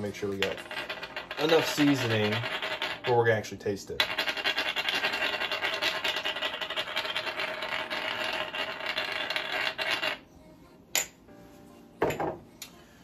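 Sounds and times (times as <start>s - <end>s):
spice grinder grinding: 0.4s - 3.2s, 4.0s - 10.2s.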